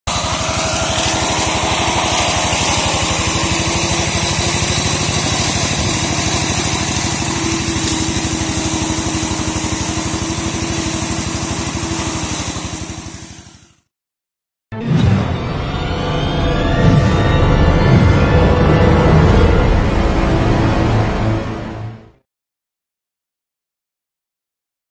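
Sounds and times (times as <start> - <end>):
brush mower engine running: 0.1 - 13.8, 16.8 - 19.3
music: 14.7 - 22.2.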